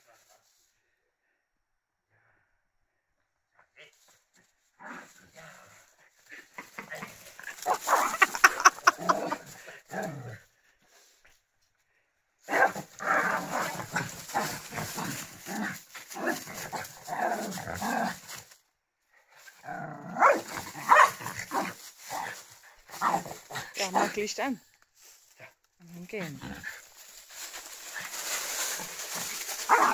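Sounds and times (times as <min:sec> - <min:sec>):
small dogs barking and growling: 0:04.8 - 0:10.4, 0:12.4 - 0:18.3, 0:19.4 - 0:24.3, 0:26.2 - 0:29.9.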